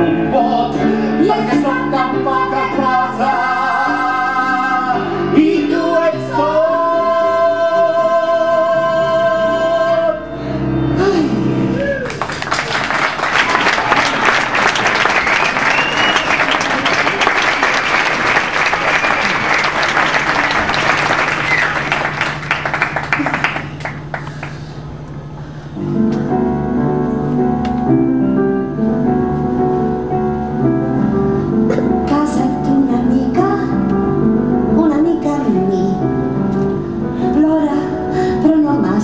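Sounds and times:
piano playing: 0.0s - 39.0s
audience applauding: 11.8s - 24.6s.

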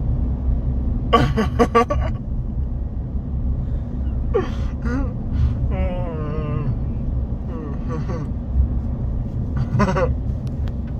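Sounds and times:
road rumble inside car: 0.0s - 10.9s
man moaning: 4.4s - 6.8s, 7.5s - 8.3s
man making wordless vocal sounds: 7.5s - 8.3s.

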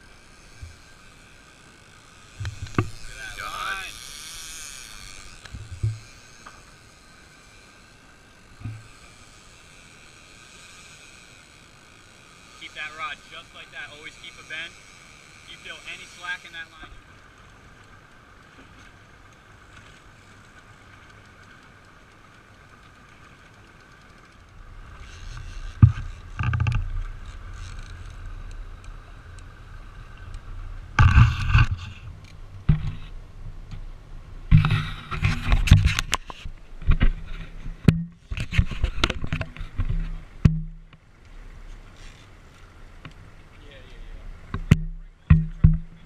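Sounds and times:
thin high whine: 0.0s - 17.4s
boat engine low rumble: 0.0s - 46.0s
faint steady hum: 0.0s - 46.0s.

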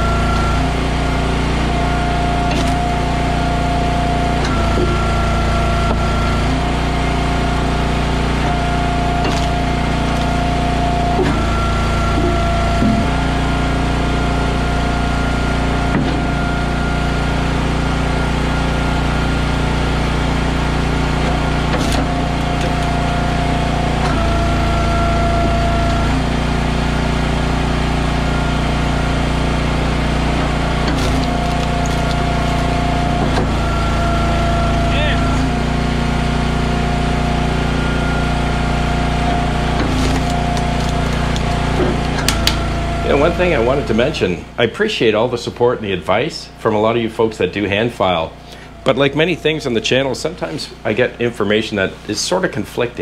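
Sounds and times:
wood splitter engine running: 0.0s - 53.0s
wood cracking: 9.2s - 10.6s, 30.8s - 33.6s, 39.8s - 42.6s.

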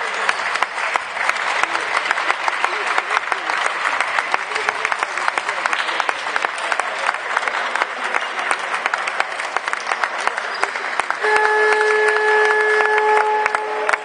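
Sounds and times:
crowd applauding: 0.0s - 14.0s
steady horn: 11.1s - 14.0s.

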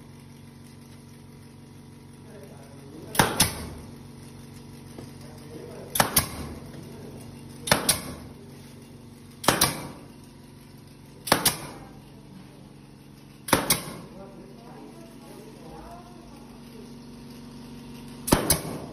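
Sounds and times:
steady low hum: 0.0s - 18.9s
nail gun firing: 3.1s - 3.9s, 5.9s - 6.7s, 7.6s - 8.4s, 9.4s - 10.2s, 11.2s - 11.9s, 13.4s - 14.1s, 18.2s - 18.9s.

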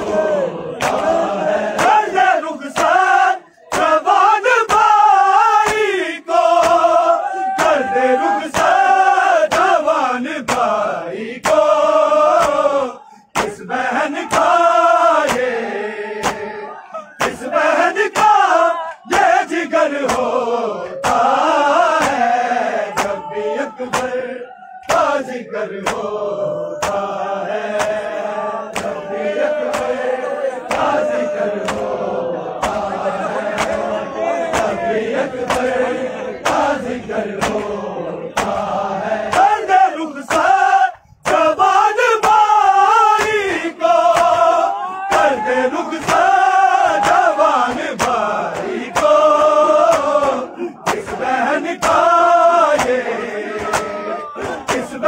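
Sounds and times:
men chanting in unison: 0.0s - 55.0s
hands slapping chests: 0.8s - 2.1s, 2.8s - 3.1s, 6.6s - 6.9s, 8.5s - 8.8s, 9.5s - 9.8s, 10.4s - 10.8s, 11.4s - 12.7s, 13.3s - 13.6s, 14.3s - 14.6s, 15.2s - 15.5s, 16.2s - 16.6s, 17.2s - 17.5s, 18.1s - 19.3s, 20.0s - 24.1s, 24.8s - 25.2s, 25.8s - 26.1s, 26.8s - 29.1s, 29.7s - 30.0s, 30.6s - 38.7s, 39.3s - 39.6s, 40.3s - 40.6s, 42.2s - 42.5s, 43.2s - 43.4s, 44.1s - 44.5s, 46.0s - 52.1s, 52.7s - 55.0s.

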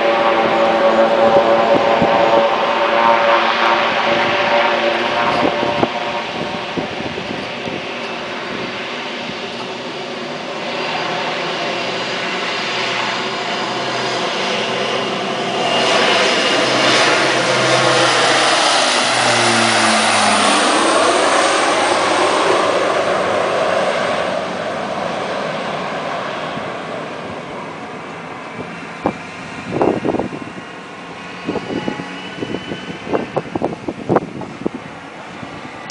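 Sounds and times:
turboprop propeller drone: 0.0s - 35.9s.

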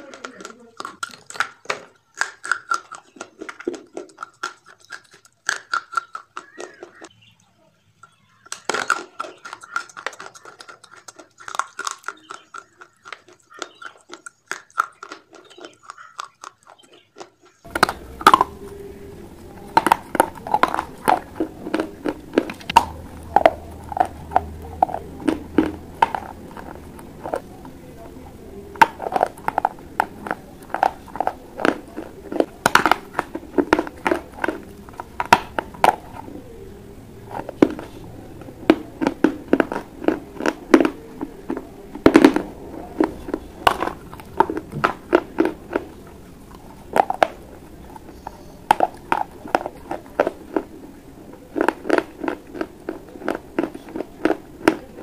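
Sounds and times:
crunching and chewing clay: 0.0s - 55.0s
steady low hum: 17.7s - 55.0s.

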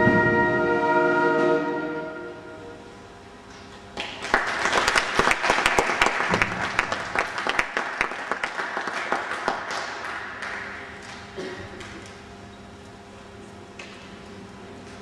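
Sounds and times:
audience clapping: 3.9s - 12.0s.

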